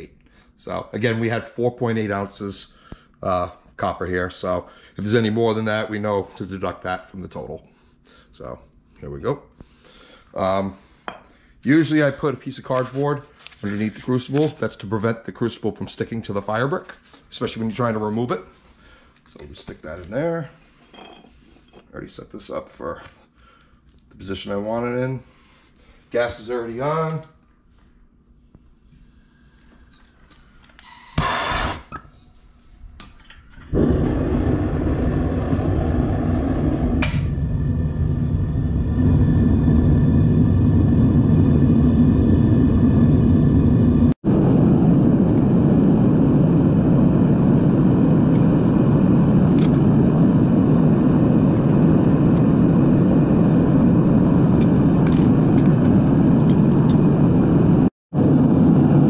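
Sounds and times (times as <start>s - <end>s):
gas burner rushing: 31.1s - 32.0s, 33.6s - 59.0s.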